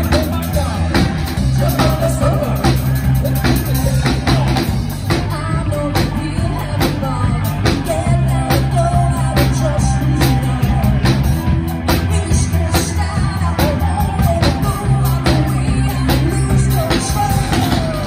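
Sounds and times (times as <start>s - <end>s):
drum kit beat: 0.0s - 18.0s
electric bass: 0.0s - 18.0s
electric guitar: 0.0s - 18.0s
woman singing: 4.3s - 18.0s.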